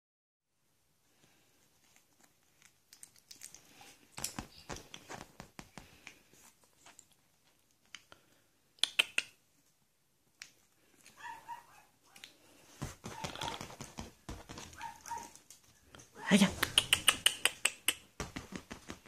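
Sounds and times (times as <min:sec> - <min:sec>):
puppy nibbling clicks: 0:02.6 - 0:04.9, 0:08.8 - 0:09.4, 0:16.6 - 0:18.1.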